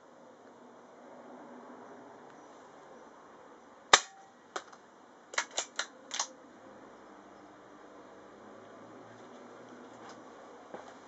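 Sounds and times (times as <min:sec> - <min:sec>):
air rifle shot: 0:03.9 - 0:04.2.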